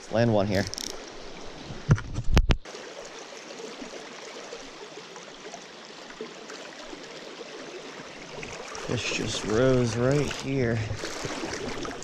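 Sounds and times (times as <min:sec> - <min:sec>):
stream water rushing: 0:02.6 - 0:12.0.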